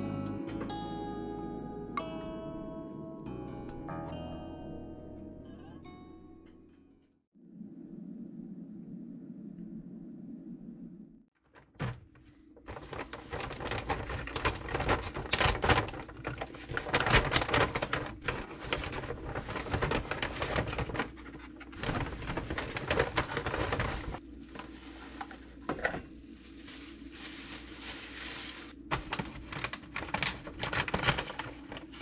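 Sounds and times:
grocery bags rustling: 11.4 - 32.0.

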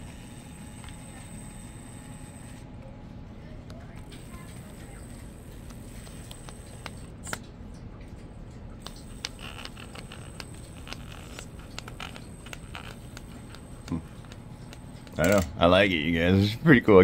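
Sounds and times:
low steady hum: 0.0 - 17.0
small clicks: 4.0 - 15.5.

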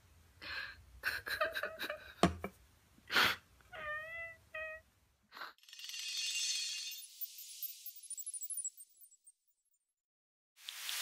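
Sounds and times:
cat meowing: 3.7 - 4.8.

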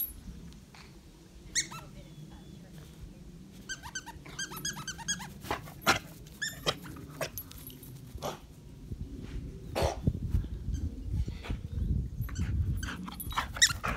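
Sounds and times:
squeaky dog toy squeaking: 3.7 - 5.3.

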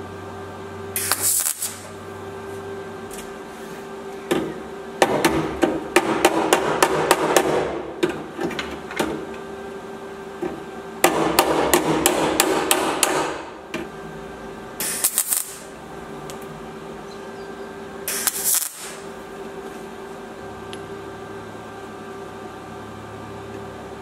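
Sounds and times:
tack welding bursts: 1.0 - 2.0, 11.0 - 13.6, 14.8 - 15.8, 18.0 - 19.2.

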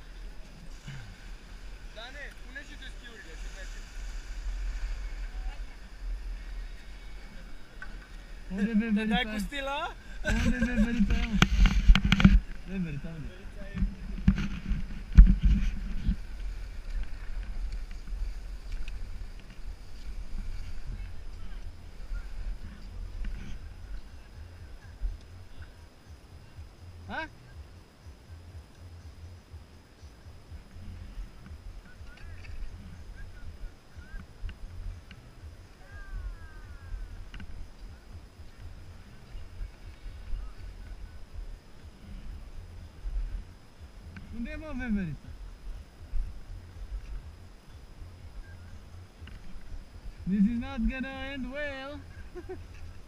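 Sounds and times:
skis sliding over snow: 0.0 - 24.3
wind rumble on microphone: 0.0 - 53.0.

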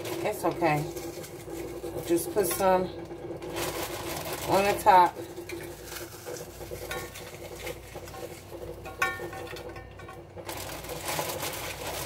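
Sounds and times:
plastic bag crinkling: 0.0 - 2.6, 3.2 - 9.7, 10.4 - 12.0
chopped vegetables pattering: 10.4 - 12.0.

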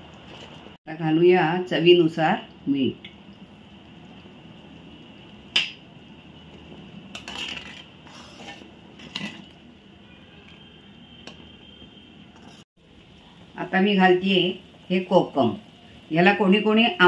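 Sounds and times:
swish of stirring: 7.2 - 9.5.

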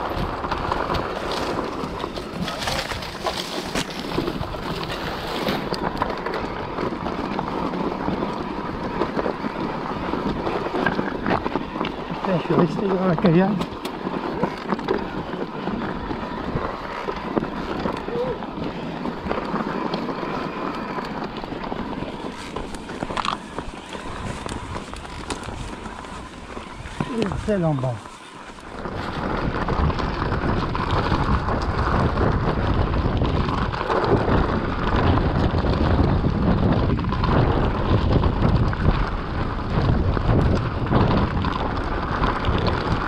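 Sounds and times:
bike rattling: 0.0 - 43.0
wind on microphone: 0.0 - 43.0
tyres crunching on stones: 0.1 - 6.3, 10.2 - 32.3.

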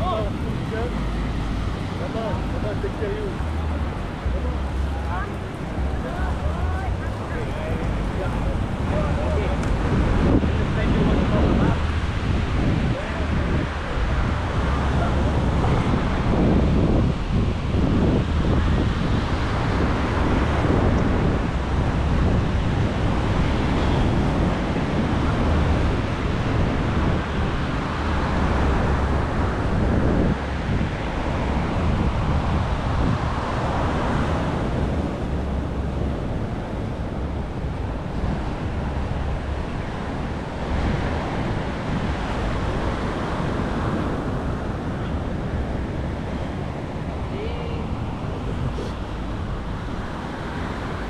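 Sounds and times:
surf washing on beach: 0.0 - 51.0
wind buffeting microphone: 0.0 - 51.0.

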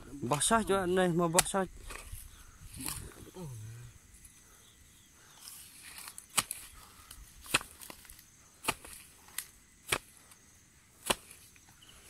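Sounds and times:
hoe chopping into soil: 1.4 - 2.2, 5.6 - 6.8, 7.4 - 10.4, 11.0 - 11.6.

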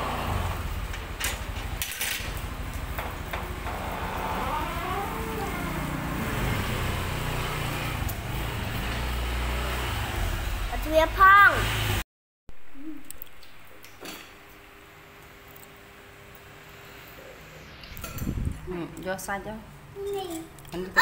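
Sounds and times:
motor scooter running: 0.0 - 12.0.

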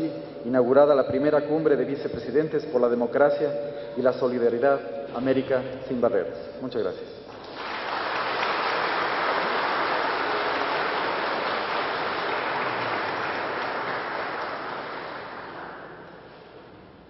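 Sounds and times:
audience applauding: 7.3 - 16.6.

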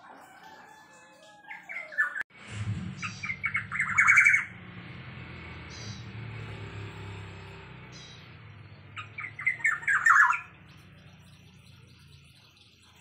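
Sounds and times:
bird whistling and calling: 3.0 - 4.5, 8.9 - 11.6.

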